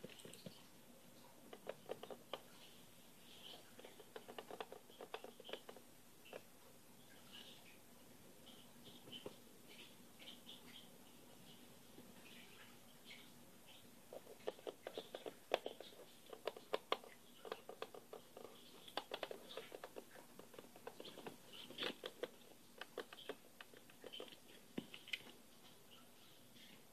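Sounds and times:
fingers tapping on hard surface: 0:03.5 - 0:06.5, 0:14.2 - 0:25.3.

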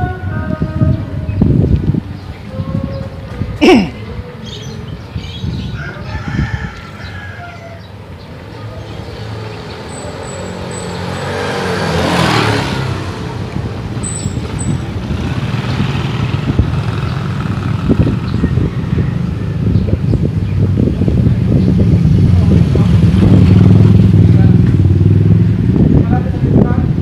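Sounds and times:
motor scooter passing: 0:07.8 - 0:20.4, 0:21.6 - 0:25.9.

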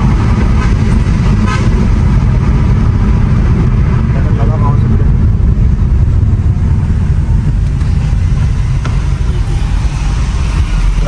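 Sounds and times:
car road and wind noise: 0:00.0 - 0:11.0.

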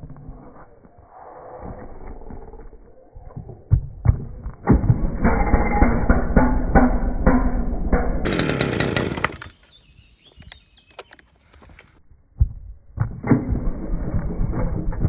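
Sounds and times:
engine pull-start: 0:04.8 - 0:09.5
small petrol engine running: 0:05.0 - 0:09.6.

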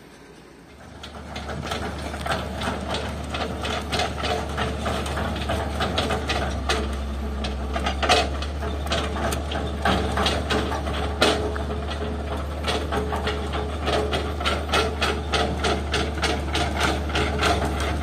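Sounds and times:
heavy diesel engine running: 0:00.0 - 0:18.0
metallic clanks and knocks: 0:01.0 - 0:18.0.

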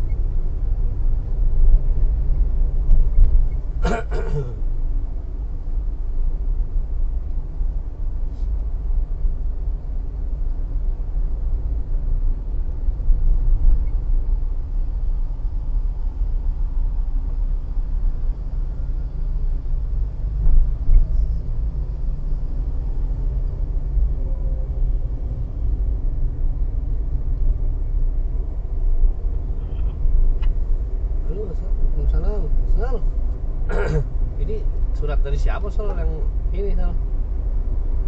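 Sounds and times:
car engine and tyres rumbling: 0:00.0 - 0:38.0.

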